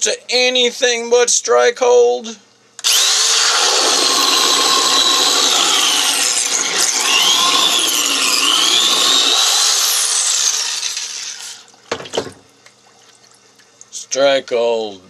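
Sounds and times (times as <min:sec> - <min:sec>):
electric drill motor whine: 0:02.8 - 0:11.6
drill churning water: 0:02.8 - 0:11.7.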